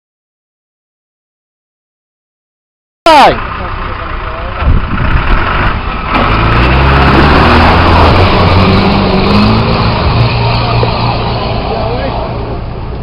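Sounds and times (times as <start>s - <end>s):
engine revving: 3.5s - 12.7s
water splashing and rushing: 4.6s - 13.0s.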